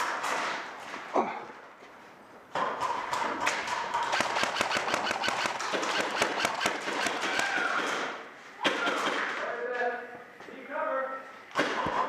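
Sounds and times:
airsoft guns firing bursts: 2.8s - 9.4s.

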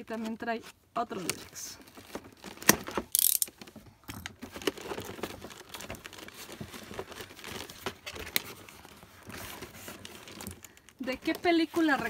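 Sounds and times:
plastic packaging crinkling: 1.7s - 12.0s
cardboard box rustling: 4.3s - 12.0s.

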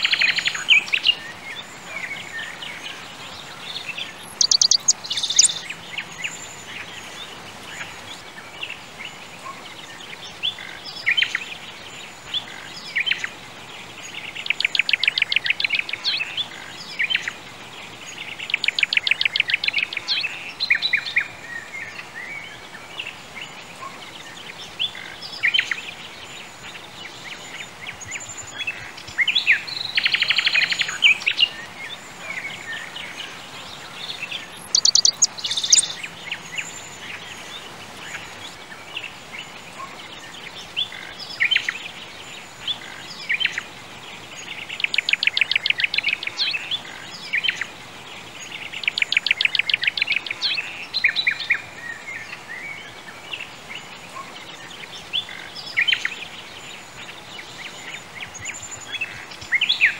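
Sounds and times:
birds chirping and singing: 0.0s - 59.9s
steady background hiss: 0.0s - 59.9s
rapid bird trills: 4.2s - 6.6s, 34.2s - 37.3s.

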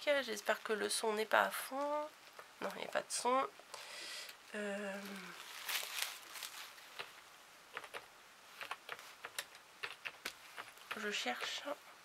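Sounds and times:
rustle: 4.5s - 7.3s
keyboard clicks and taps: 7.7s - 11.6s.

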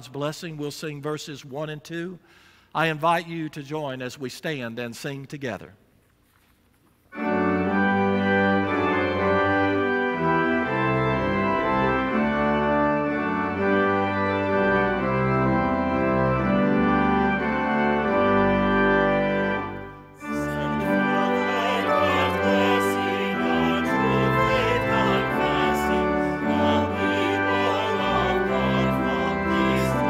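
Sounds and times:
church organ playing chords: 7.1s - 30.0s.

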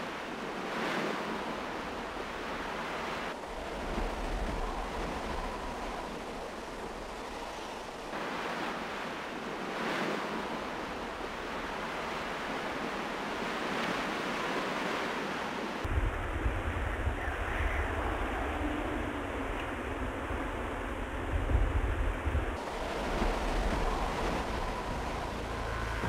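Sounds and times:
wind buffeting microphone: 0.1s - 14.6s, 15.8s - 26.0s
wind rushing: 15.8s - 26.0s.

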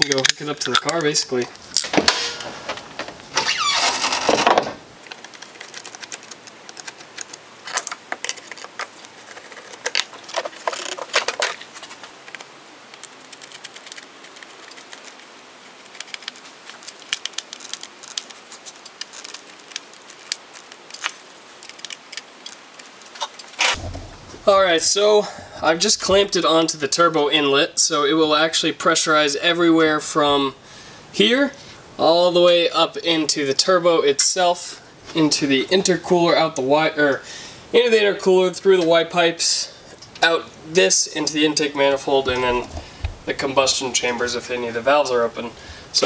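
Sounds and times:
screwdriver clicks and rattles: 0.0s - 1.1s.

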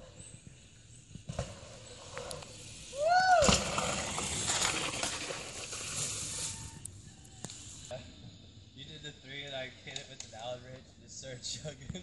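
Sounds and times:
bicycle rolling over dirt: 0.2s - 7.9s
person whooping: 2.9s - 3.6s.

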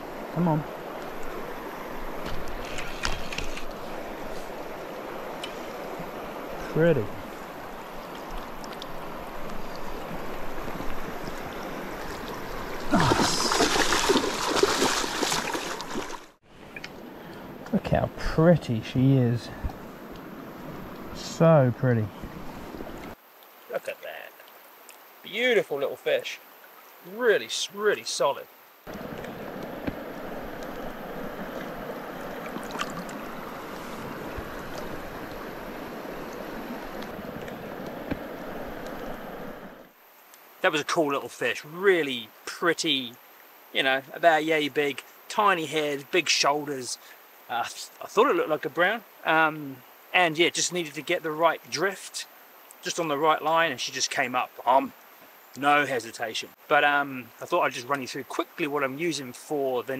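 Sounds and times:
small water splashes: 0.0s - 16.9s, 28.8s - 39.1s
stream running over rocks: 0.0s - 59.9s
splashing in water: 8.1s - 16.4s, 31.4s - 35.2s.

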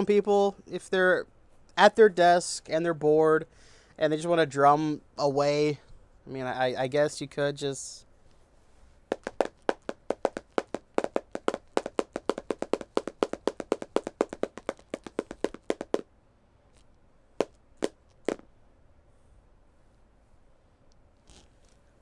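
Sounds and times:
pencils tapping drum roll: 9.1s - 16.0s.

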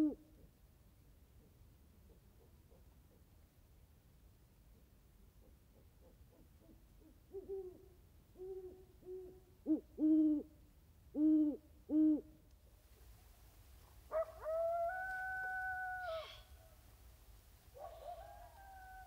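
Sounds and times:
long higher owl call: 0.0s - 0.2s, 7.0s - 12.3s, 14.1s - 16.8s, 17.8s - 19.0s
owl hooting: 14.1s - 16.6s.

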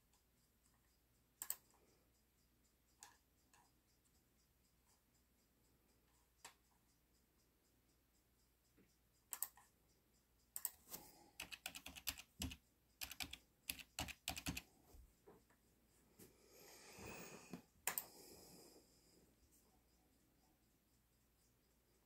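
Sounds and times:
typing on computer keyboard: 9.3s - 9.7s, 10.6s - 14.7s.

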